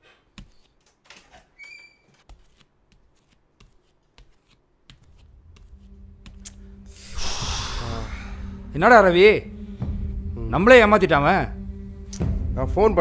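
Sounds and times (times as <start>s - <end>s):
footsteps on tiled floor: 0.0s - 6.6s
high-pitched squeak: 1.3s - 2.2s.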